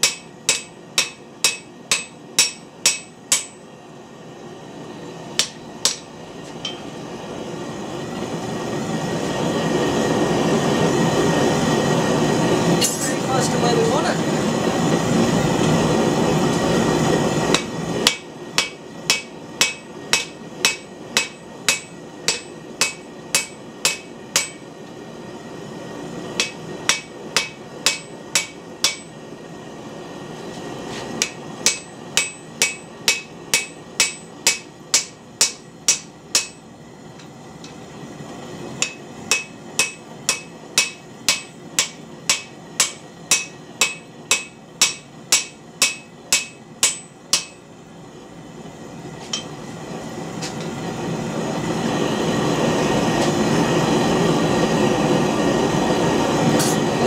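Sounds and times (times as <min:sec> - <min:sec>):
hammer blows on anvil: 0:00.0 - 0:03.7, 0:17.5 - 0:24.7, 0:26.4 - 0:29.2, 0:31.2 - 0:36.7, 0:38.8 - 0:47.6.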